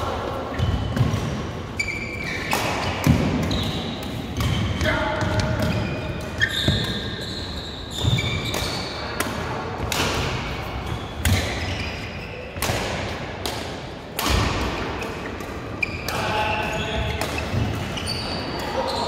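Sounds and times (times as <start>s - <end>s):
shoes squeaking on court: 0.5s - 9.1s, 10.7s - 12.6s, 15.0s - 19.0s
racket hitting shuttlecock: 2.2s - 7.2s, 7.9s - 16.3s, 17.0s - 18.0s.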